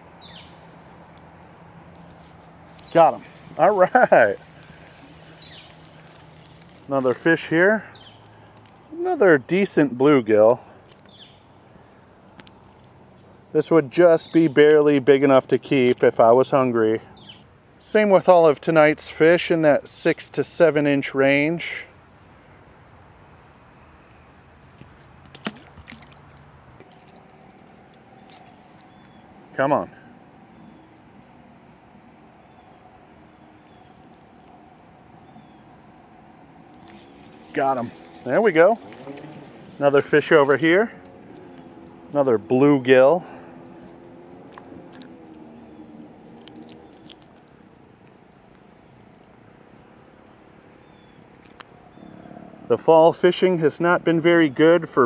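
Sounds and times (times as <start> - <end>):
insects chirping: 0.0 - 55.0
fishing gear clicks and knocks: 2.0 - 7.3, 24.8 - 29.2.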